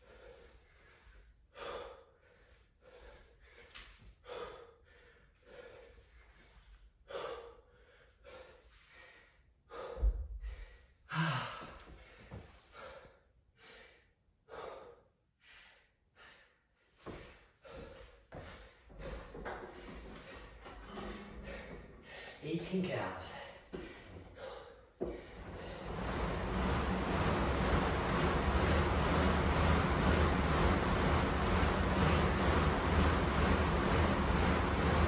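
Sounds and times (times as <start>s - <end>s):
man panting hard: 0.0s - 20.6s, 21.2s - 22.4s, 23.3s - 26.0s
man grunting exhale: 11.1s - 11.8s.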